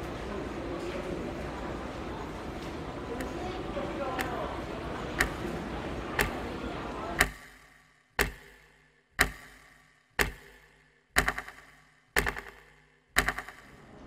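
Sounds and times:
clock ticking: 4.0s - 6.6s, 7.2s - 13.8s
rattling clusters of clicks: 5.1s - 5.6s, 7.2s - 13.8s.

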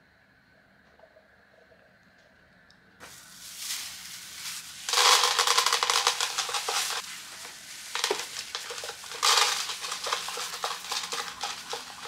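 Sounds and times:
dry kibble clattering in a bowl: 3.0s - 12.0s
dog crunching pellets: 4.6s - 12.0s.

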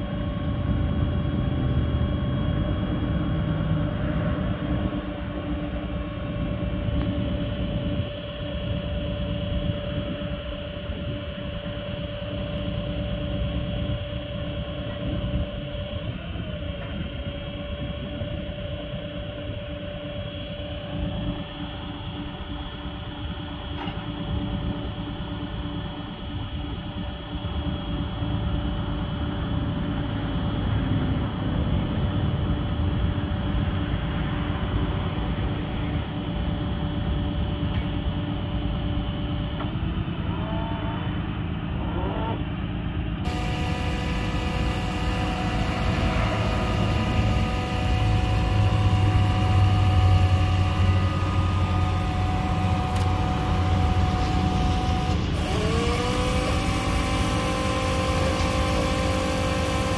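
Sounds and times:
diesel truck engine running: 43.1s - 59.9s.

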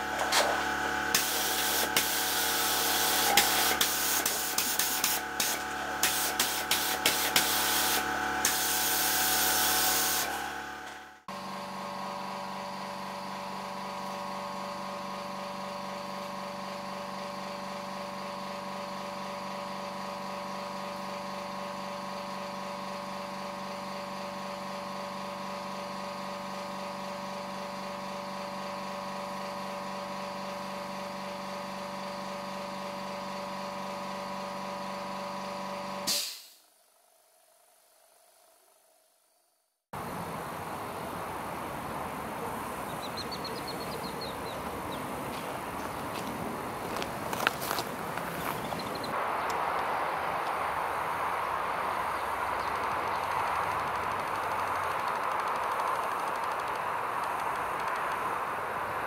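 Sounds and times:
steady machine hum: 0.0s - 39.4s, 40.0s - 59.0s
spray gun hissing: 1.2s - 10.4s
spray gun clicks: 3.3s - 7.6s.

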